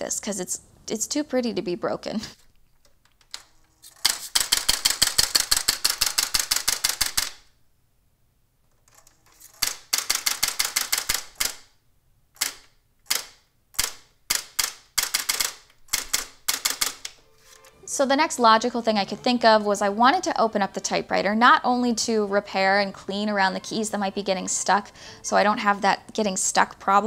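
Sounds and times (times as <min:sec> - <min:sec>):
electronic typewriter clacking: 0:03.9 - 0:07.5, 0:08.9 - 0:11.7, 0:12.4 - 0:17.2.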